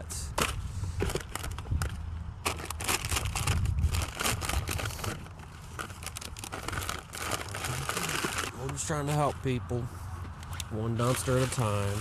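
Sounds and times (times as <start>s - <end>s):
wind rumble on microphone: 0.3s - 5.2s
trash bags rustling and crinkling: 0.4s - 9.3s, 10.9s - 12.0s.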